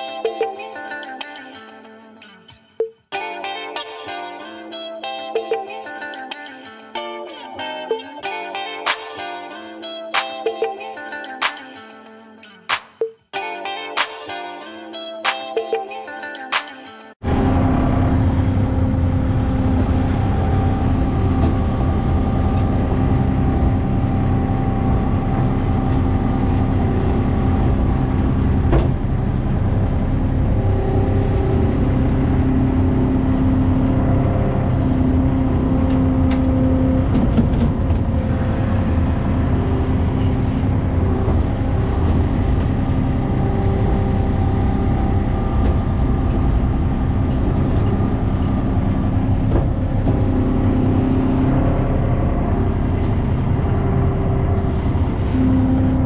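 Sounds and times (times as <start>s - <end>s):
sharp knock: 12.7s - 13.1s
diesel engine running under load: 17.2s - 56.0s
high whine: 17.2s - 56.0s.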